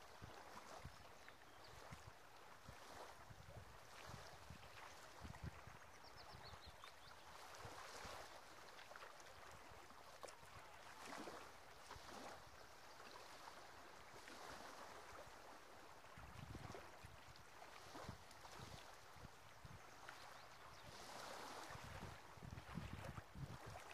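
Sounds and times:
small waves lapping on shore: 0:00.0 - 0:23.9
wind buffeting microphone: 0:16.2 - 0:16.8, 0:20.8 - 0:23.9.

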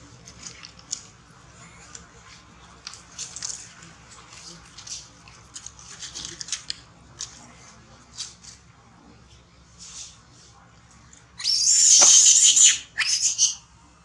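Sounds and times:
baby monkey screaming: 0:11.4 - 0:13.6
baby monkey squeaking: 0:11.4 - 0:13.6.

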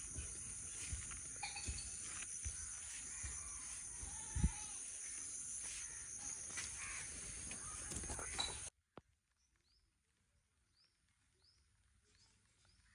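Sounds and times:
faint bird chirps: 0:00.0 - 0:08.7.

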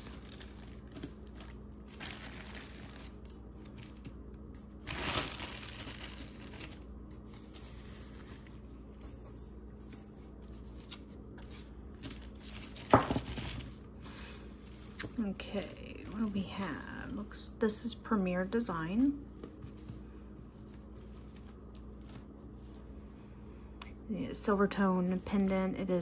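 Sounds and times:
metal jewelry clinking: 0:00.0 - 0:17.3
faint steady hum: 0:00.0 - 0:26.0.

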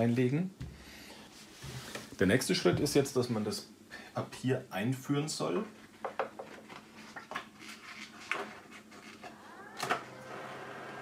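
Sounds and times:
printer feed motor whine: 0:09.2 - 0:11.0.

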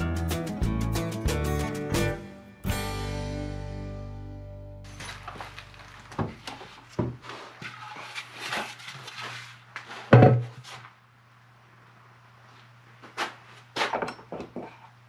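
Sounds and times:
wooden knocks and clunks: 0:06.1 - 0:07.2, 0:10.1 - 0:10.6.

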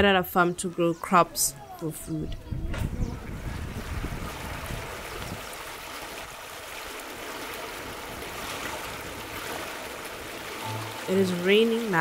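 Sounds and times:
floodwater rushing: 0:03.2 - 0:12.0.

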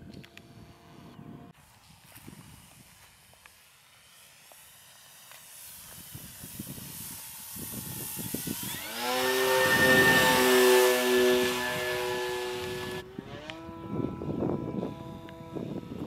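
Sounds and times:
model plane motor whining: 0:04.0 - 0:16.0.

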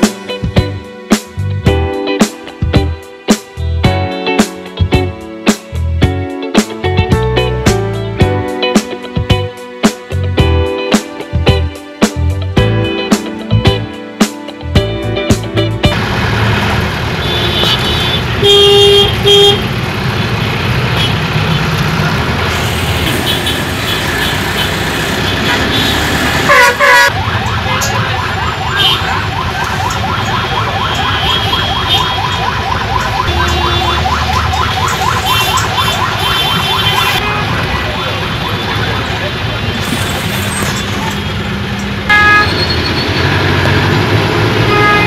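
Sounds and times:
rumble of traffic engines: 0:14.6 - 0:45.0
vehicle horns honking: 0:17.1 - 0:19.8, 0:20.9 - 0:21.7, 0:22.6 - 0:27.1, 0:28.7 - 0:29.2, 0:30.4 - 0:32.4, 0:33.2 - 0:34.2, 0:35.2 - 0:41.4, 0:42.1 - 0:43.4, 0:44.6 - 0:45.0.

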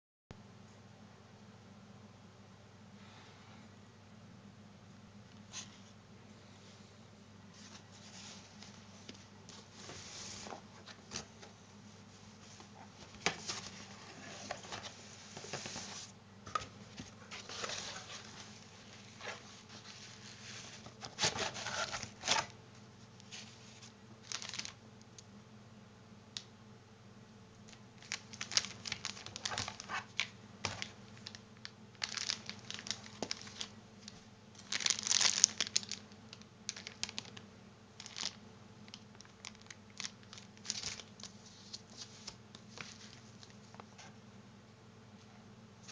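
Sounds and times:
cardboard rustling: 0:12.3 - 0:22.5, 0:28.0 - 0:31.4, 0:32.0 - 0:33.7
plastic crinkling: 0:23.4 - 0:24.8, 0:27.6 - 0:37.4, 0:38.0 - 0:44.0.

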